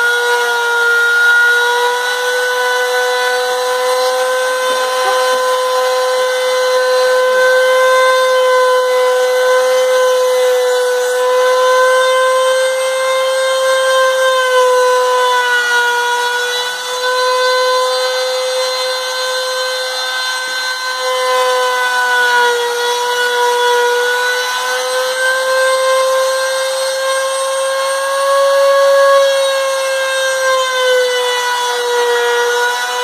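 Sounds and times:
bit rasping through wood: 0.0s - 33.0s
router motor high whine: 0.0s - 33.0s.

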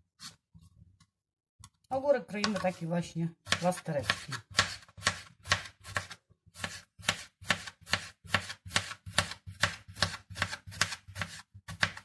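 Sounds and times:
knife slicing cucumber on board: 3.4s - 12.0s.

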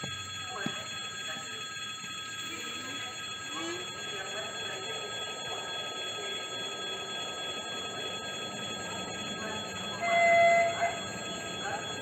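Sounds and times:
level crossing warning bell ringing: 0.0s - 12.0s
steady background haze: 3.8s - 12.0s.

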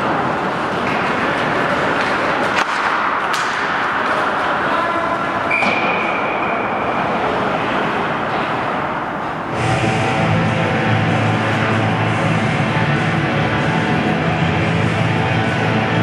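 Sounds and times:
arena noise: 0.0s - 16.0s
stick hitting puck clicks: 0.7s - 4.3s.

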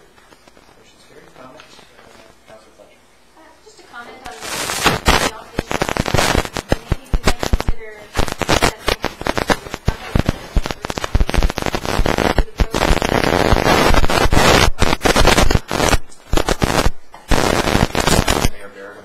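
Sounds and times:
microphone crackling and popping: 4.1s - 18.6s.

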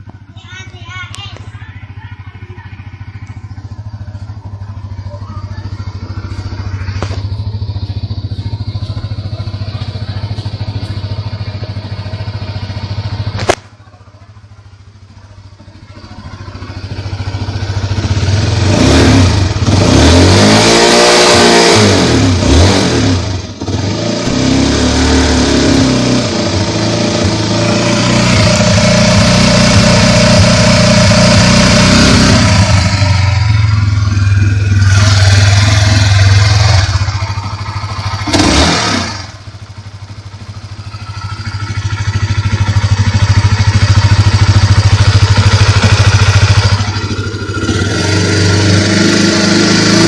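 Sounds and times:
motorcycle engine idling and revving: 0.0s - 50.0s.

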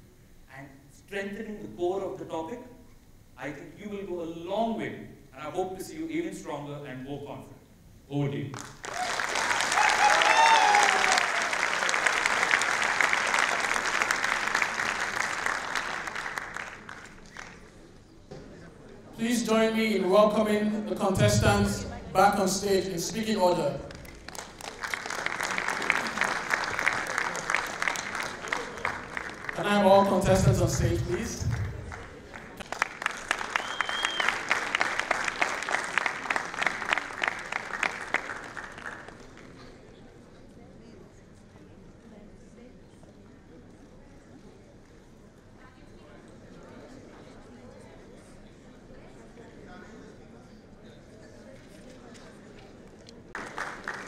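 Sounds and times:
audience applauding: 8.6s - 17.9s, 23.5s - 39.6s, 53.3s - 54.0s
high whistling tone: 33.6s - 34.4s.

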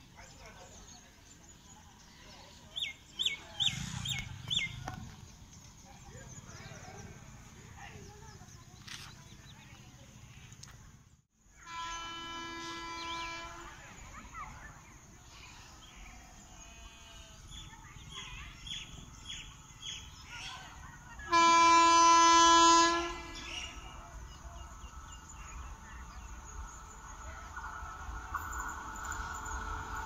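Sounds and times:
train horn blasts: 11.6s - 14.0s, 21.3s - 24.1s.

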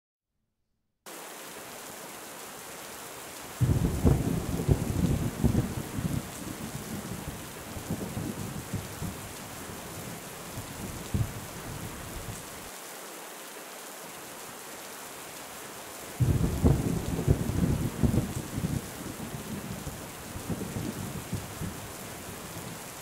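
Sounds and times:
heavy rain: 1.1s - 23.0s
thunder clap: 3.6s - 9.2s, 16.2s - 19.8s
thunder rumbling: 3.6s - 12.4s, 16.2s - 22.8s.

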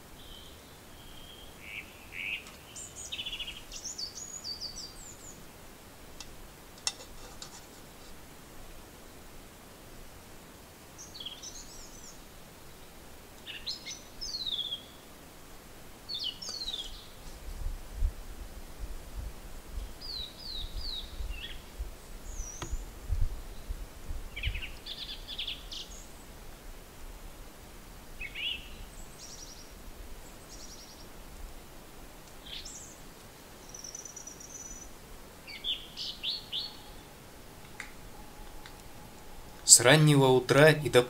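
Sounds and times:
small birds chirping: 0.0s - 8.3s, 10.9s - 15.2s, 16.0s - 17.6s, 19.7s - 26.4s, 28.2s - 31.4s, 32.1s - 41.0s
wind rumble on microphone: 16.9s - 25.6s.

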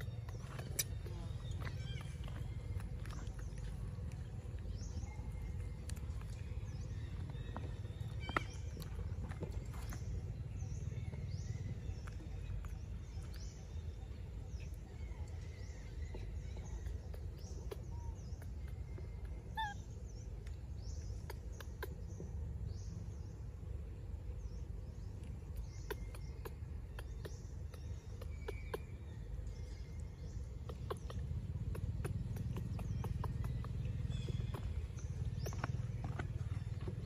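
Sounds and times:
low steady rumble: 0.0s - 37.0s
high bird chirps: 15.4s - 20.0s, 25.6s - 37.0s.

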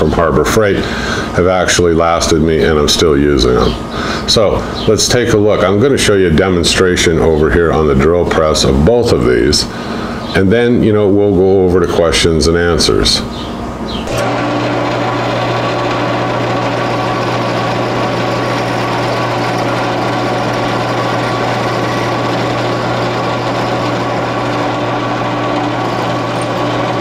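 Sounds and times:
drill press drilling steel: 14.0s - 27.0s.

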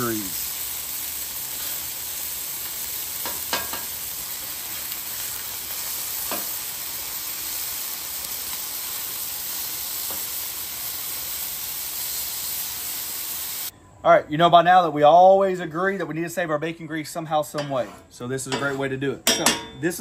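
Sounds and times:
meat sizzling on griddle: 0.0s - 13.7s
spatula clicking on griddle: 6.2s - 6.6s.

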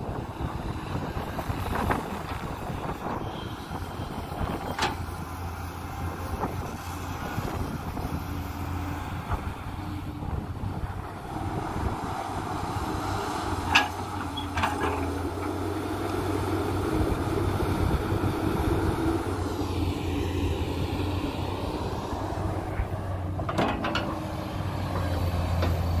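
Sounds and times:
excavator diesel engine running: 0.0s - 26.0s.

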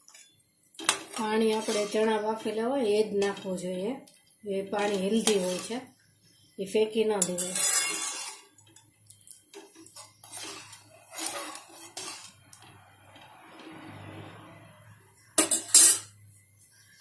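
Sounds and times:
metal ladle scraping pan: 0.0s - 3.5s, 4.7s - 5.9s, 7.2s - 8.7s, 9.5s - 14.4s, 15.4s - 16.1s.

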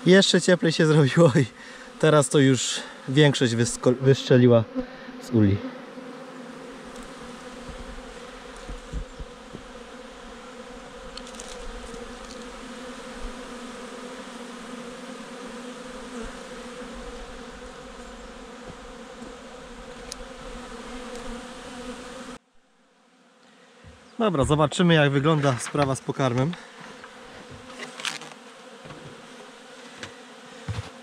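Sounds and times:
bees buzzing: 0.0s - 31.0s
low thumps: 7.6s - 9.8s.

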